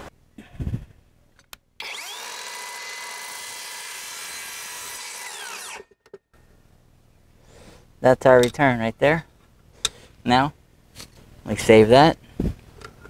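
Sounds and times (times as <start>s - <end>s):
miter saw motor whine: 1.8s - 5.9s.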